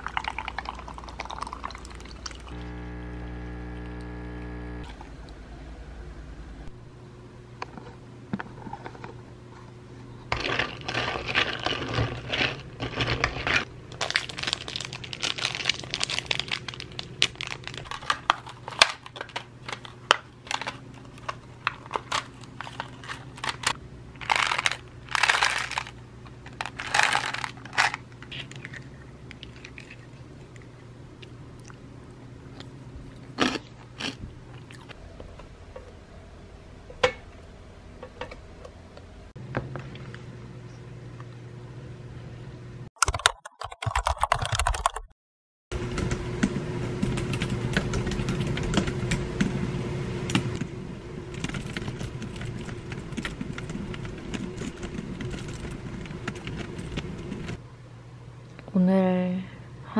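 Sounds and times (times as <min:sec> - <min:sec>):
steady low hum: 0:00.0 - 0:42.9, 0:45.7 - 0:59.9
plastic packaging crinkling and tearing: 0:10.4 - 0:28.9.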